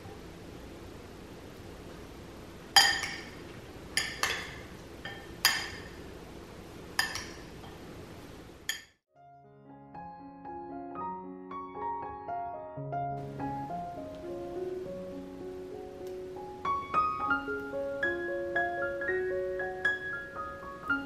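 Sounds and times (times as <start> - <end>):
low steady hiss: 0.0 - 8.9, 13.1 - 21.0
metal spoon clinking glass bowl: 2.8 - 3.4, 4.0 - 6.0, 7.0 - 7.8, 8.7 - 9.0.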